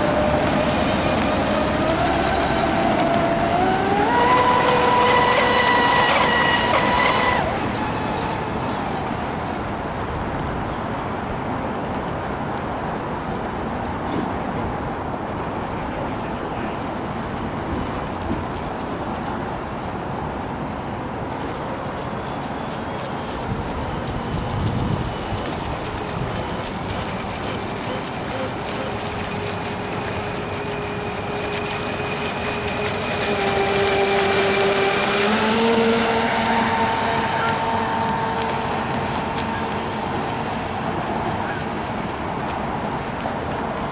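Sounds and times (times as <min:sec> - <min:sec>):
rc speedboat motors: 0:00.0 - 0:09.6, 0:23.0 - 0:43.9
racing boats rushing drone: 0:00.0 - 0:43.9.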